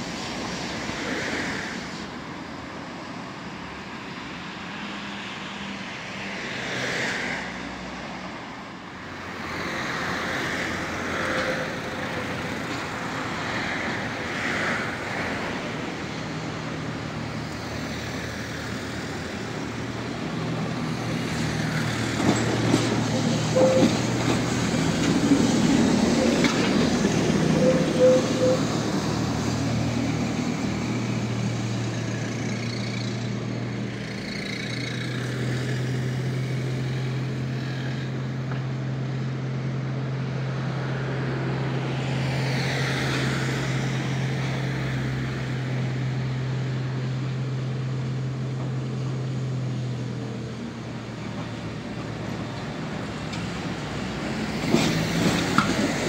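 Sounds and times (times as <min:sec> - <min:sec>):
tram wheels rumbling: 0:08.1 - 0:56.0
tram motors humming: 0:09.1 - 0:56.0
short beeps: 0:23.5 - 0:24.0, 0:27.6 - 0:28.7.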